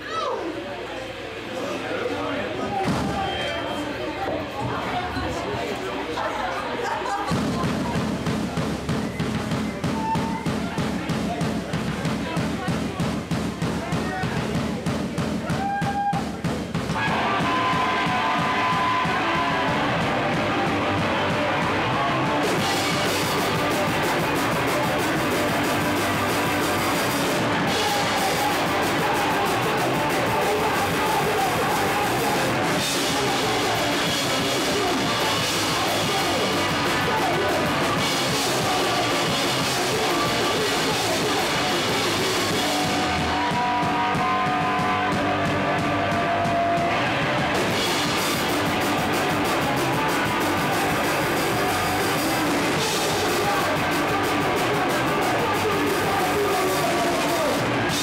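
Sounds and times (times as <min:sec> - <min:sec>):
drum kit: 0:07.2 - 0:58.0
electric guitars: 0:16.9 - 0:58.0.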